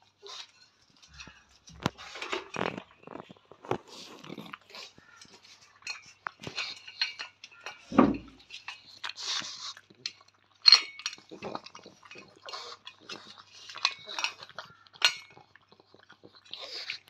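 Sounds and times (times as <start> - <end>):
dog chewing and snuffling: 0.0 - 17.0
loud thump: 7.9 - 8.3.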